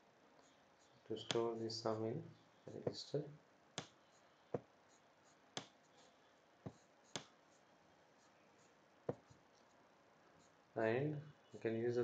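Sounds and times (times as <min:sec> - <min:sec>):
stylus tapping on pen tablet: 0:05.6 - 0:05.8, 0:06.6 - 0:07.4, 0:09.0 - 0:09.4.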